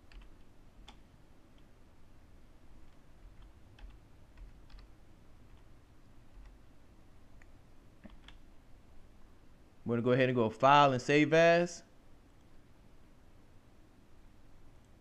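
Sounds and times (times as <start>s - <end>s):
computer keyboard typing: 0.0s - 1.0s, 2.9s - 4.9s, 6.3s - 6.6s, 8.0s - 8.4s
low steady hum: 0.0s - 15.0s.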